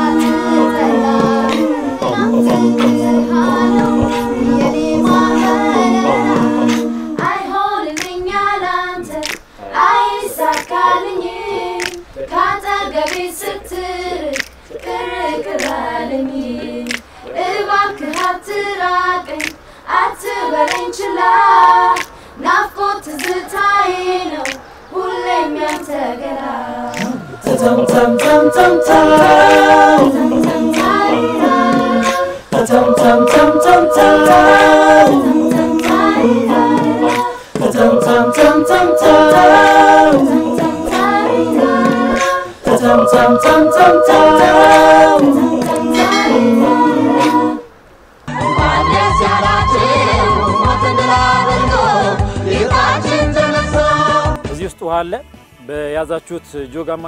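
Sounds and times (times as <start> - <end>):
hand clapping: 0.0 - 8.4, 9.1 - 9.5, 10.4 - 11.0, 11.8 - 13.3, 14.3 - 17.1, 18.0 - 18.4, 19.3 - 19.6, 20.2 - 21.0, 21.8 - 22.2, 23.1 - 23.6, 24.4 - 24.6, 25.6 - 26.0, 26.9 - 47.5
unaccompanied group singing: 0.0 - 54.6.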